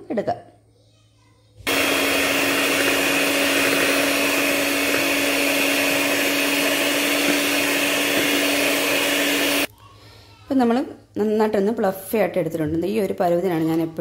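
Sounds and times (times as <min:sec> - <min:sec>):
electric hand mixer whirring: 0:01.7 - 0:09.7.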